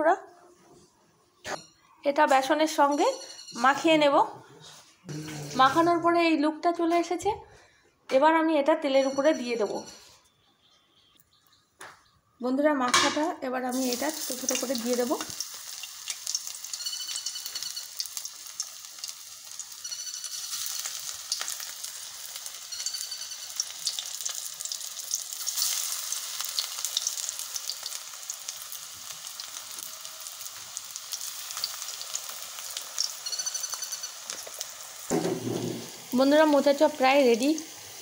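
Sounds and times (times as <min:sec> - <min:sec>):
food deep-frying in hot oil: 0:13.7 - 0:38.0.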